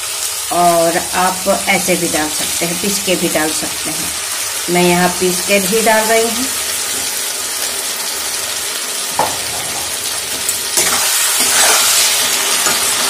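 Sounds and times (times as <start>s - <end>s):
food sizzling in hot oil: 0.0s - 13.0s
metal spatula stirring: 10.8s - 12.0s.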